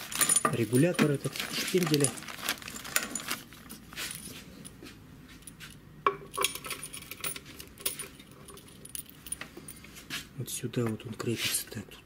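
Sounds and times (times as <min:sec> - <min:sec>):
metal parts clinking together: 0:00.0 - 0:04.3, 0:06.2 - 0:09.4.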